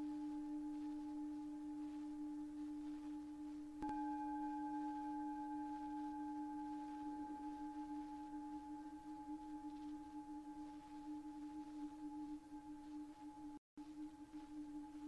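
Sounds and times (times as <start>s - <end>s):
singing bowl ringing: 0.0s - 15.0s
singing bowl struck: 3.8s - 13.6s.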